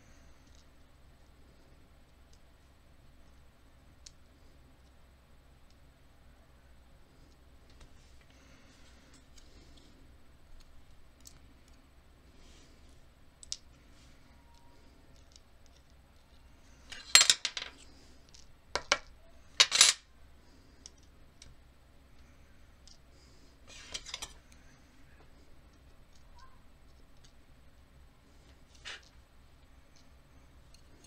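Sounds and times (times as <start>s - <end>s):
metal objects clinking on tabletop: 16.9s - 17.8s, 19.6s - 20.0s.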